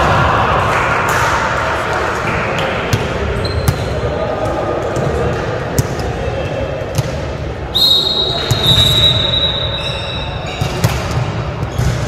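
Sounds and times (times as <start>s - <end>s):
volleyball impacts echoing: 2.3s - 9.8s, 10.4s - 12.0s.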